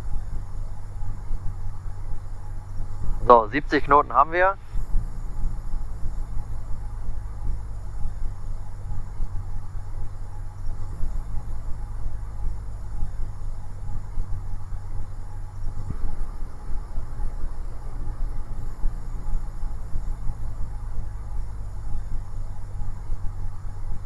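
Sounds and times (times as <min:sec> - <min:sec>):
light aircraft engine drone: 0:00.0 - 0:24.0.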